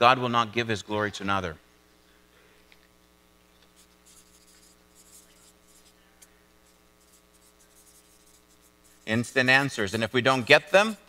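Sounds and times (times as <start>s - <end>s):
low electrical hum: 0.0s - 11.0s
marker scratching on paper: 3.6s - 11.0s.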